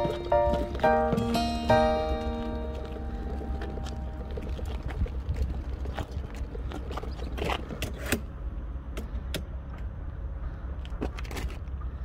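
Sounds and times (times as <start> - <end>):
wagon wheels rumbling on pavement: 0.0 - 8.5.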